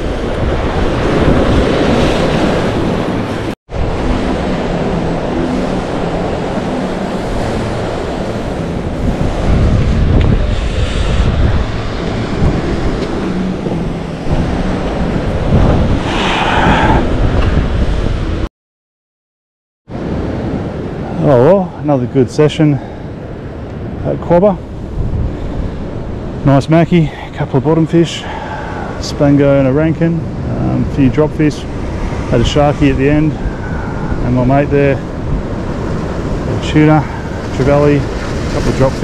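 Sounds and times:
wind buffeting microphone: 0.0 - 18.5, 22.7 - 27.4, 28.2 - 39.0
waves breaking against rocks: 31.7 - 39.0.

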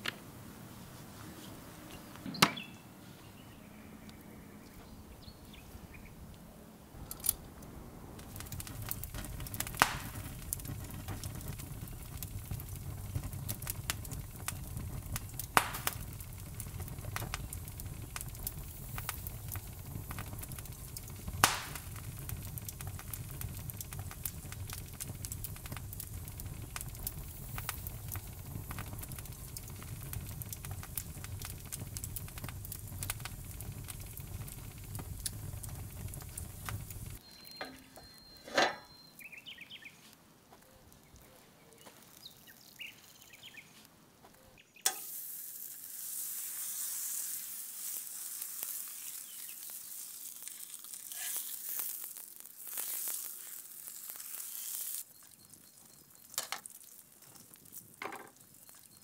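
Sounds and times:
fire crackling: 0.0 - 38.4, 39.0 - 59.0
fire pops: 7.0 - 38.0, 40.6 - 59.0.

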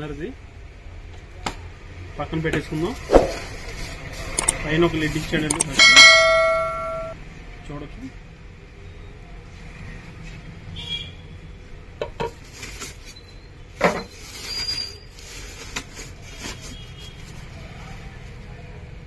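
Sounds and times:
plastic wrapping rustling: 2.8 - 5.4, 12.3 - 13.3, 14.0 - 17.7
pot lid and ceramic pot clinking: 5.7 - 7.2.

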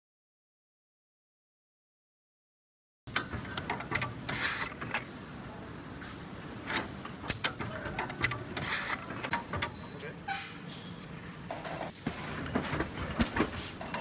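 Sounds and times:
sharp mechanical clicks: 7.3 - 9.8.

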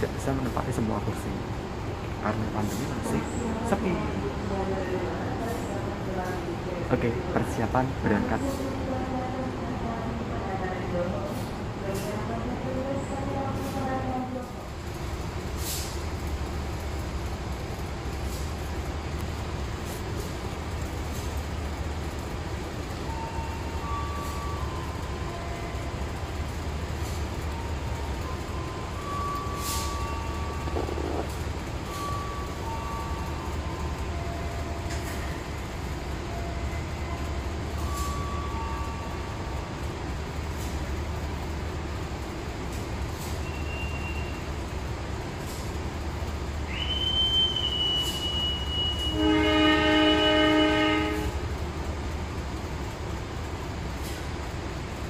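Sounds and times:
diesel locomotive idling: 0.0 - 55.0
long high whistle: 46.7 - 50.6
locomotive horn chord: 48.0 - 51.5.

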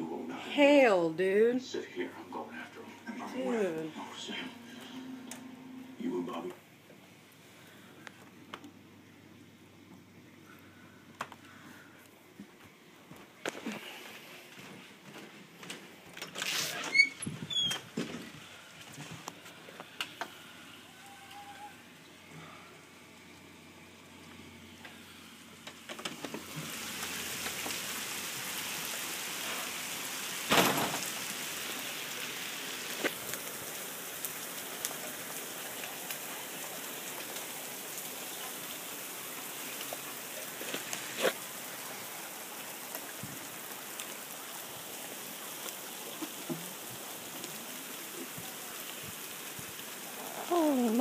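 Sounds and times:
rain: 0.0 - 51.0
hailstones pattering on pavement: 25.9 - 50.2
sharp hail knocks: 30.5 - 31.2.

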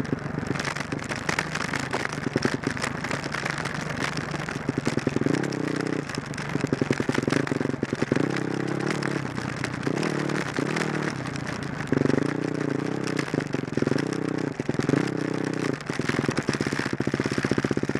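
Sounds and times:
dirt bike engine revving: 4.9 - 6.1, 6.7 - 11.2.

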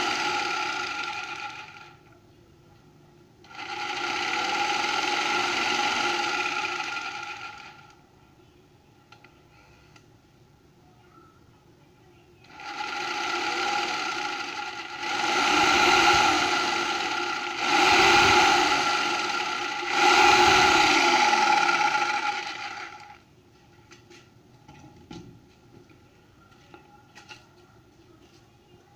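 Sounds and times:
electric jigsaw buzzing: 0.0 - 2.0, 3.5 - 8.0, 12.5 - 23.2.

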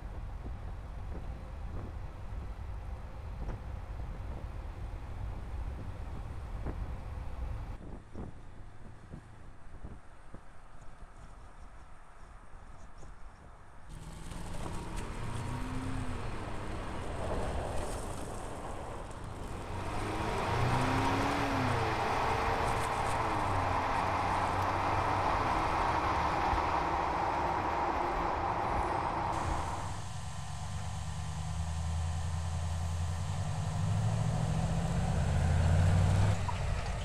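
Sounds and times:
wind: 0.0 - 37.0
pickup engine low hum: 13.9 - 37.0
tyres rushing on loose ground: 13.9 - 37.0.

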